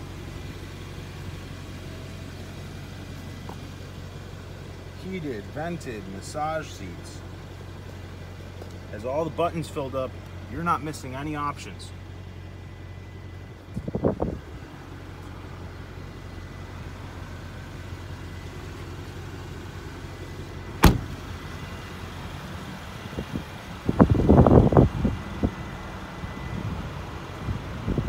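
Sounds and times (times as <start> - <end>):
car engine idling: 0.0 - 28.0
car door slamming: 20.7 - 21.4.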